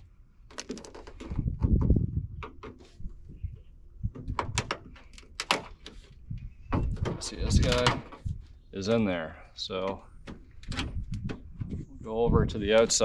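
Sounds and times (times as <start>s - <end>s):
low bumps: 1.0s - 5.0s.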